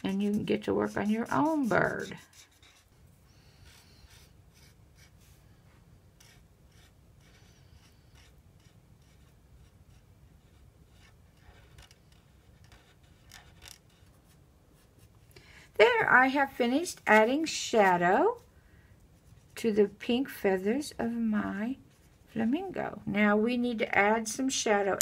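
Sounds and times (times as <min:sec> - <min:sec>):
marker scratching on paper: 0:00.0 - 0:03.0, 0:03.6 - 0:05.4, 0:06.2 - 0:15.1.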